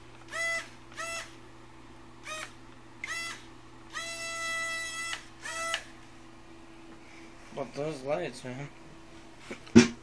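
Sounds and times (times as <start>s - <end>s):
small motors whining in blips: 0.3s - 1.4s, 2.2s - 5.9s.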